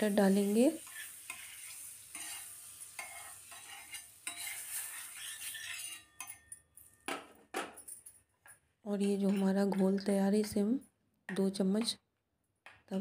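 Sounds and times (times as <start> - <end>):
butter sizzling on pan: 0.0 - 6.3
metal spatula scraping pan: 0.4 - 6.6, 9.0 - 10.6.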